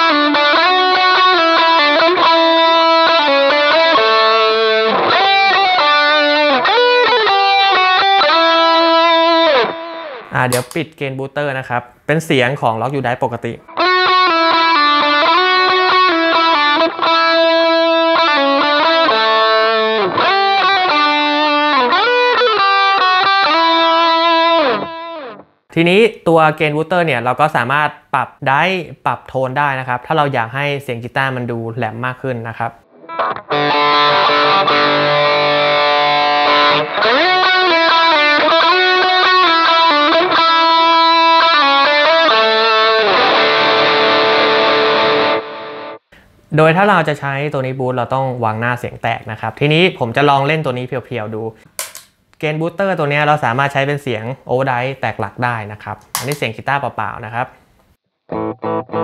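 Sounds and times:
distorted electric guitar notes: 0.0s - 10.8s, 13.6s - 25.6s, 32.8s - 46.3s, 58.3s - 59.0s.

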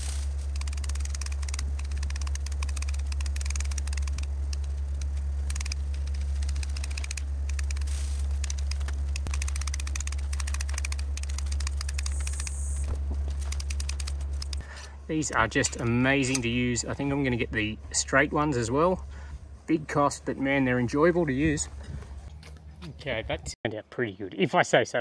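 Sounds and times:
hedge shears snipping: 0.0s - 14.7s
steady low hum: 0.0s - 23.6s.

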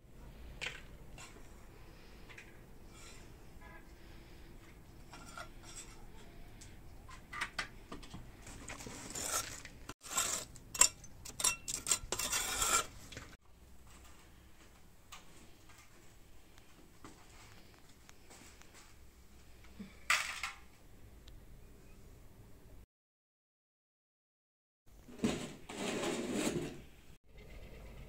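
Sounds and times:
scraping embers from stove: 2.8s - 4.3s, 5.0s - 6.7s, 8.8s - 13.3s.

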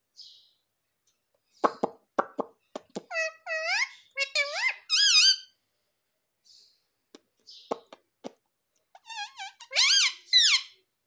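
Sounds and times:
parakeet high calls: 3.1s - 5.6s, 9.0s - 10.8s.

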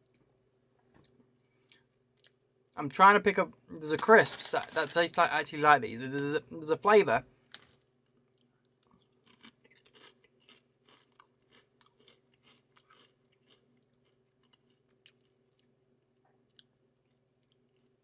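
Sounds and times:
crisps being chewed: 7.5s - 15.8s, 16.4s - 18.0s.

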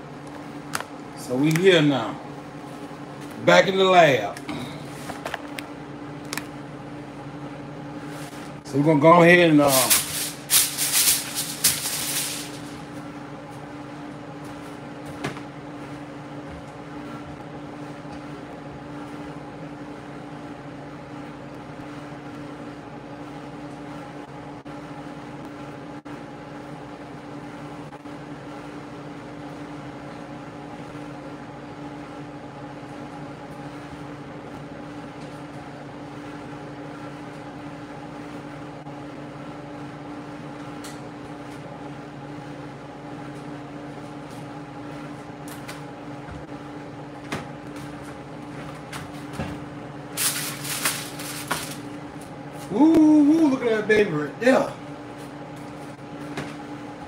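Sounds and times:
steady mechanical hum: 0.0s - 57.0s
aluminium foil crinkling: 9.7s - 12.8s, 50.2s - 51.9s.

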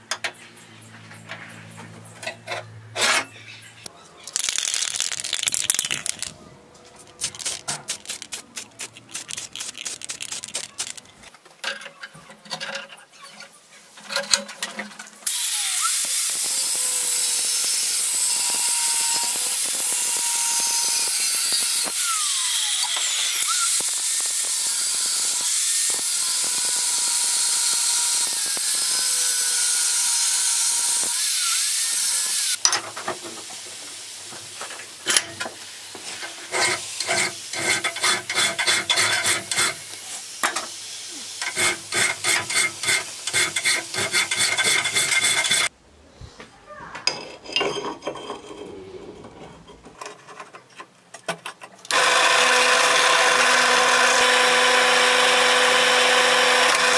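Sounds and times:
power tool grinding steel: 15.3s - 32.6s, 36.2s - 40.2s, 41.1s - 45.7s, 51.9s - 56.9s
hand file on steel: 36.4s - 39.8s, 41.4s - 45.7s.

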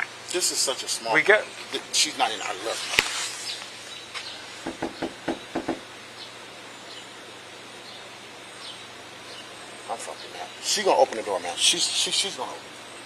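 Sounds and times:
knocking on a door: 4.6s - 5.8s.

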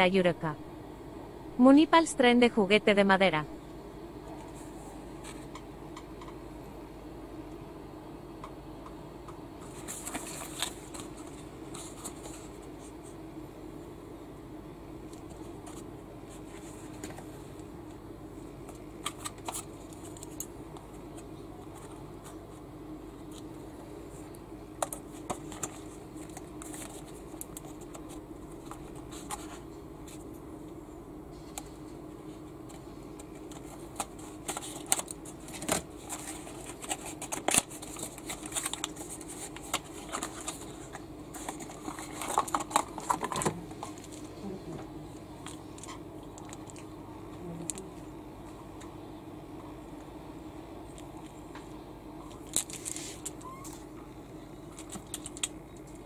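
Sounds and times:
steady low hum: 0.0s - 56.0s
cardboard clicks and rustles: 32.6s - 44.3s.

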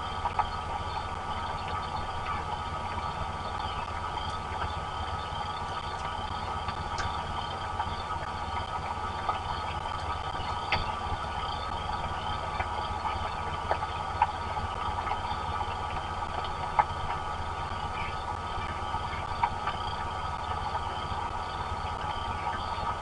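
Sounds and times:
low steady rumble: 0.0s - 23.0s
sharp ticks of raindrops: 0.0s - 23.0s
steady rain falling: 0.0s - 23.0s.

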